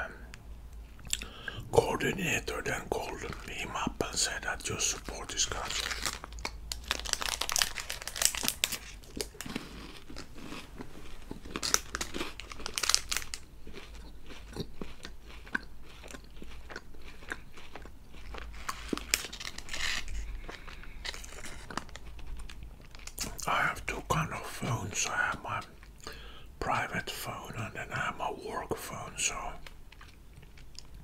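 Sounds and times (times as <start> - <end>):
chewing: 0.8 - 1.6, 2.6 - 7.4, 8.2 - 23.5, 29.3 - 31.0
crunching wafer bites: 4.4 - 23.5.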